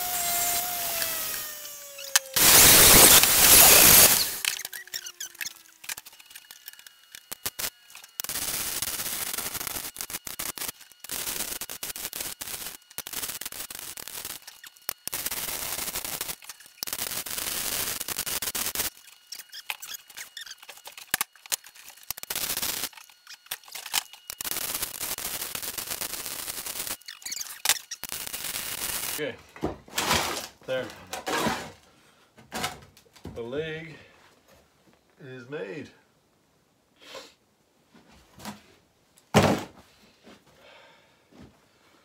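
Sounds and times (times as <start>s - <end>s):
electric arc welding crackling: 0.0s - 29.2s
short falling whine: 0.0s - 29.2s.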